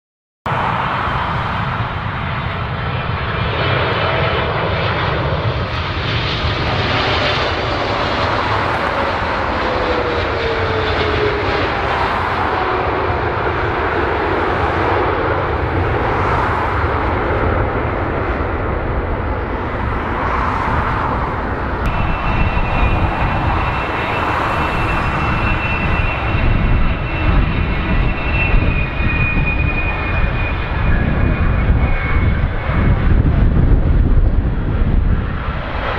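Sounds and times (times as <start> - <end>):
jet engines passing: 0.5 - 35.9
high-pitched fan whine: 21.9 - 33.7.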